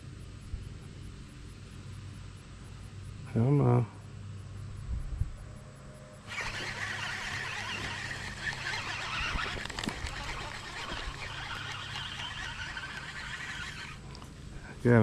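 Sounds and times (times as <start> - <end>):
fishing reel gear whirring: 6.2 - 14.4.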